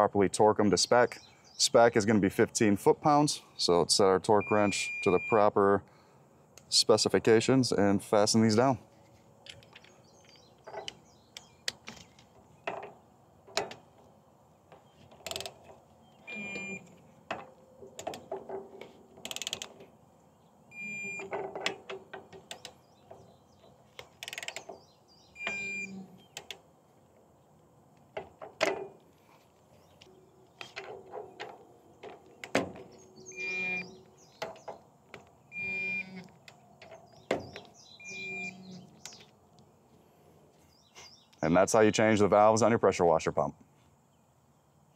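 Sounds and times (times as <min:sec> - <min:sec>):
short electronic beeps: 0:04.4 - 0:05.4, 0:25.4 - 0:26.0, 0:35.5 - 0:36.2, 0:38.0 - 0:38.6
ratchet clicks: 0:15.2 - 0:15.6, 0:19.2 - 0:19.8, 0:24.0 - 0:24.7.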